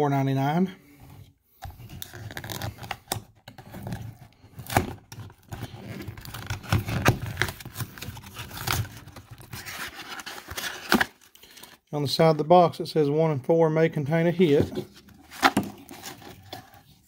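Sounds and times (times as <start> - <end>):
cardboard box being torn open: 2.0 - 11.3, 15.2 - 16.8.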